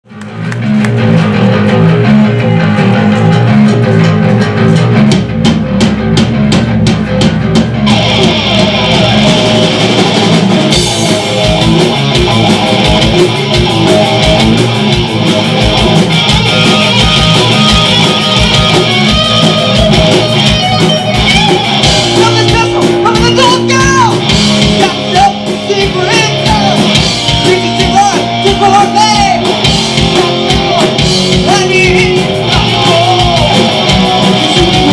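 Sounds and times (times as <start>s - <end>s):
bass guitar: 0.0s - 34.9s
electric guitar: 0.0s - 34.9s
drum kit: 0.1s - 34.9s.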